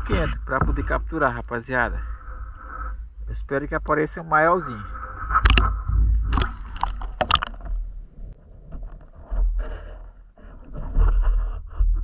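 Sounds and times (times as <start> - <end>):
water sloshing and gurgling: 0.0 - 12.0
small clicks and scrapes: 8.7 - 12.0.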